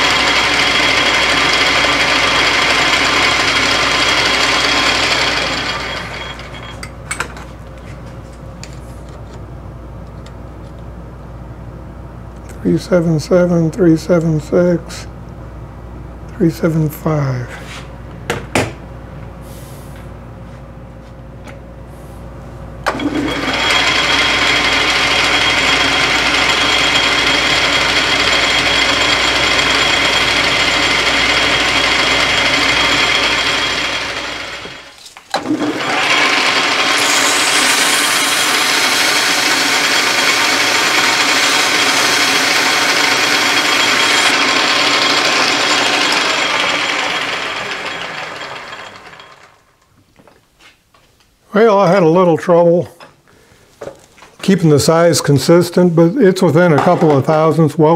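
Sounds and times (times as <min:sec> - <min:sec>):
metal lathe machining: 0:00.0 - 0:06.9, 0:22.9 - 0:49.6.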